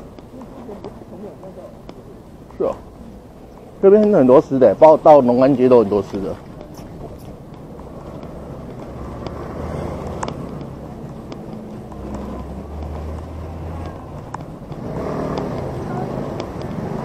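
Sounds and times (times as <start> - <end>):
road noise: 0.0 - 17.0
scooter engine running: 5.2 - 17.0
faint sharp ticks: 6.1 - 17.0.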